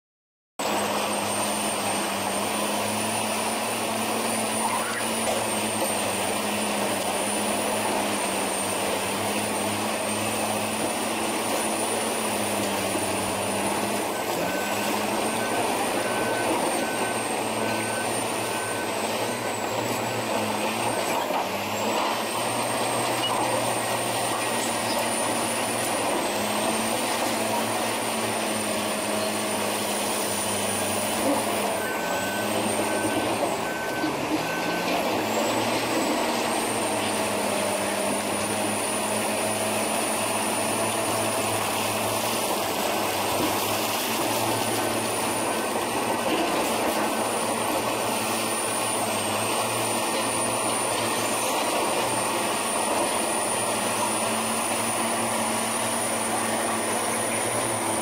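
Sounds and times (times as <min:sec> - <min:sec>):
bulldozer diesel engine: 0:00.6 - 0:58.0
faint reversing alarm beeps: 0:04.2 - 0:05.8, 0:13.0 - 0:26.0, 0:30.2 - 0:37.4
high whine: 0:04.4 - 0:05.9.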